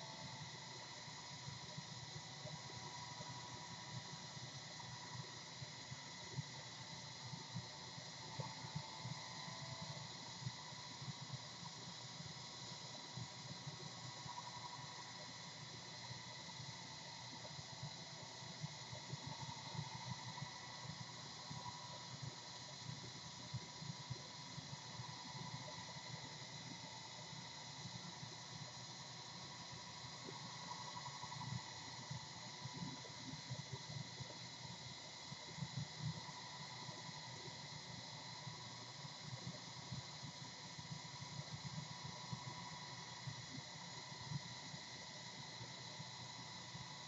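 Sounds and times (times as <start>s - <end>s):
room tone hiss: 0.0s - 47.0s.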